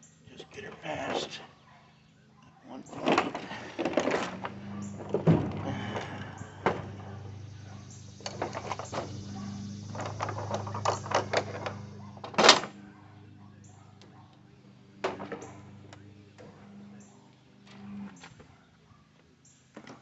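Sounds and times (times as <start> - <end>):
steady low hum: 0.0 - 18.3
tools and metal parts clanking: 2.8 - 12.7.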